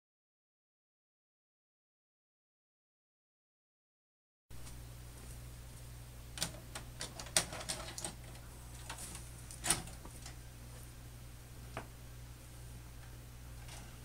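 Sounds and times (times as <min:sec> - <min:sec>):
low electrical hum: 0:04.5 - 0:14.0
tape mechanism clicking and clunking: 0:06.4 - 0:10.4.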